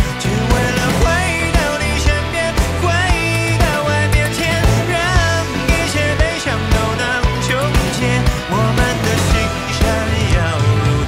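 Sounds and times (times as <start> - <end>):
pop song: 0.0 - 11.0.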